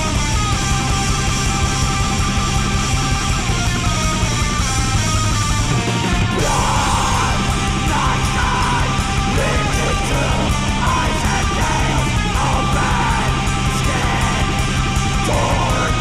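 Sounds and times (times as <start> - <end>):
distorted electric guitars: 0.0 - 16.0
harsh shrieked vocal: 6.3 - 16.0.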